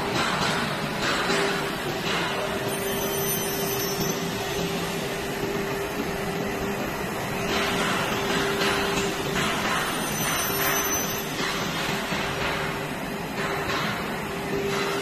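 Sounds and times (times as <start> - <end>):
machine motor drone with whine: 0.0 - 15.0.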